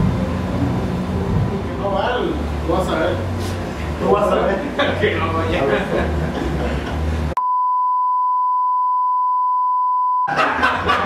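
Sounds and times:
laughter: 4.7 - 7.0, 10.3 - 11.0
censor bleep: 7.4 - 10.3.

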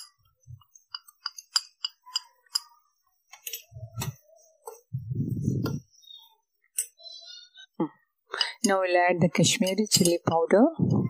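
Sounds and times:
spoon scraping a steel pan: 9.5 - 10.5.

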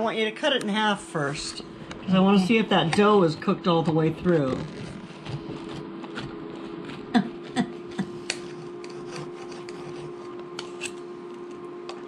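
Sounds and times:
steady hum: 0.0 - 12.0
knife sawing through crust: 8.1 - 10.9.

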